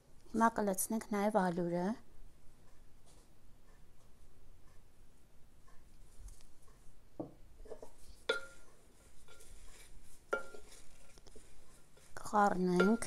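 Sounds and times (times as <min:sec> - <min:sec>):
spoon knocking ceramic bowl: 0:07.2 - 0:11.1, 0:12.4 - 0:13.0
spoon stirring in bowl rustle: 0:07.6 - 0:13.0.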